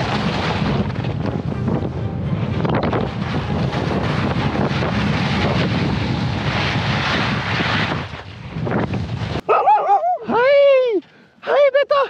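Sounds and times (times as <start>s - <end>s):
skis scraping on icy snow: 0.0s - 9.4s
wind rushing over microphone: 0.0s - 9.5s.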